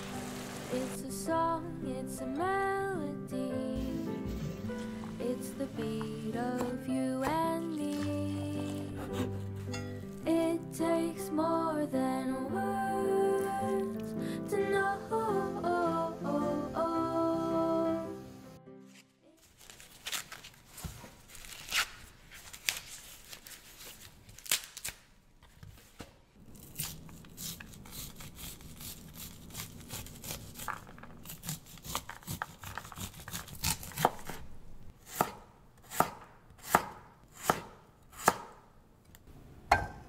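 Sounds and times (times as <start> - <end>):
knife cutting through cob: 6.6 - 10.2, 26.6 - 34.5, 35.1 - 38.6
corn husks tearing: 19.4 - 25.1, 26.4 - 34.3.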